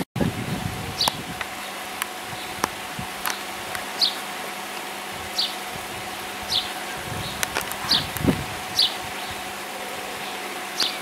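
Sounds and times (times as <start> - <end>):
faint steady hum: 0.2 - 11.0
sparrow chirping: 4.0 - 4.2, 5.4 - 5.6, 6.5 - 9.4.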